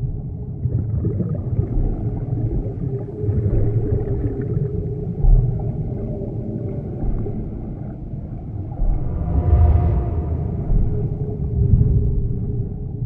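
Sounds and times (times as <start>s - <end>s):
deep creature rumble: 5.6s - 13.0s
heavy low boom: 8.7s - 13.0s
faint moaning tone: 8.8s - 12.5s.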